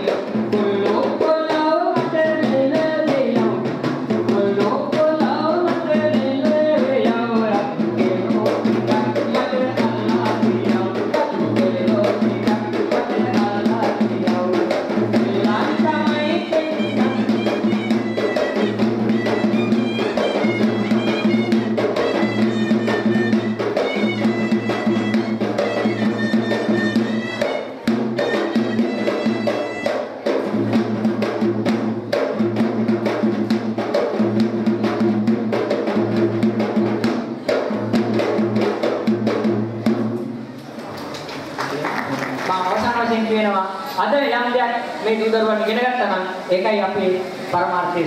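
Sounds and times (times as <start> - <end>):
hand drum played fast: 0.0 - 40.4
high melody line: 16.2 - 30.0.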